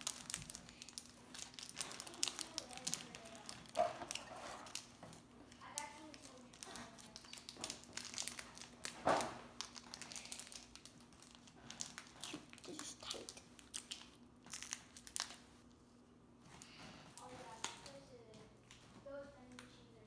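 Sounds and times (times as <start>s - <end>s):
plastic and foil packaging crinkling: 0.0s - 15.8s, 16.5s - 19.6s.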